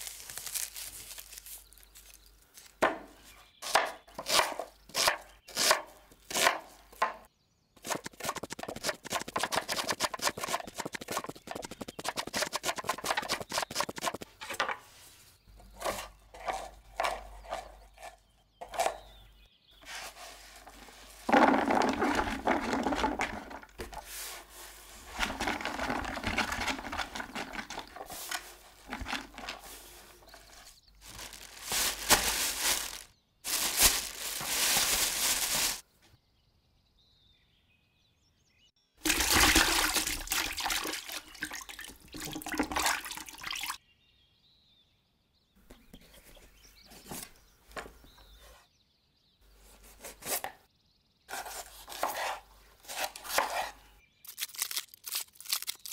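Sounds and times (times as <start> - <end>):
plastic bag handled: 0.0 - 2.8, 19.9 - 35.8
scraping and rustling: 19.8 - 35.8.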